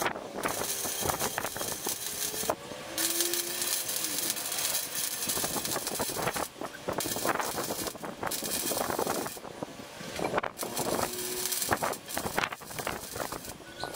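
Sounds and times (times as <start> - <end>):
arc welder crackling hiss: 0.0 - 13.9.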